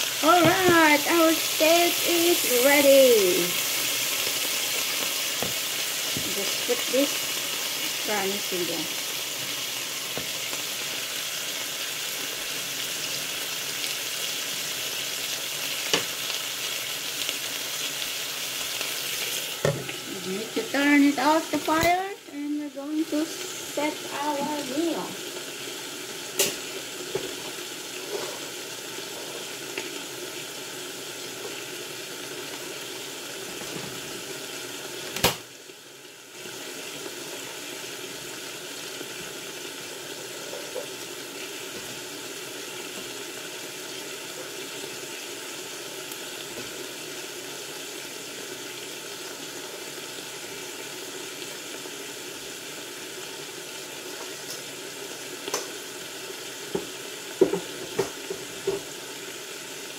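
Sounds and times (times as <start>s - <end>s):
food sizzling in frying pan: 0.0s - 59.9s.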